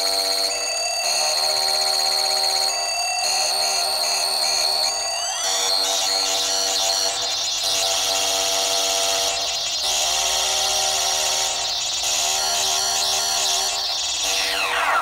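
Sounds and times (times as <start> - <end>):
electronic synth drone: 9.7 - 15.0
harsh high synth buzz: 9.7 - 15.0.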